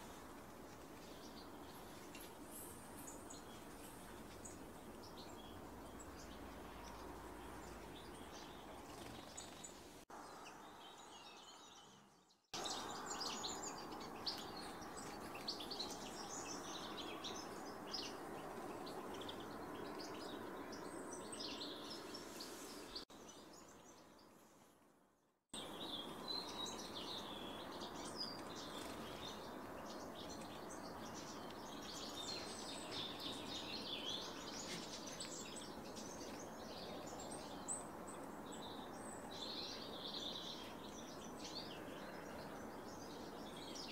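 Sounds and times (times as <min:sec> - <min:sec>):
songbirds chirping: 0:00.0 - 0:43.9.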